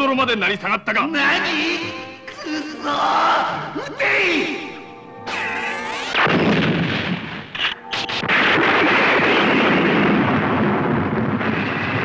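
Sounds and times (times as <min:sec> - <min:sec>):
ray-beam blasts: 0:05.3 - 0:12.0
explosion: 0:06.1 - 0:12.0.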